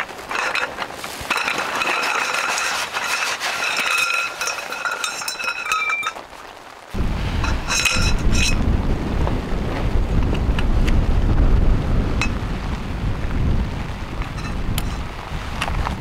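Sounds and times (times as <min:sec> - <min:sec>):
metal tent poles clinking and rattling: 0:00.0 - 0:06.3, 0:07.4 - 0:08.6, 0:14.3 - 0:15.1.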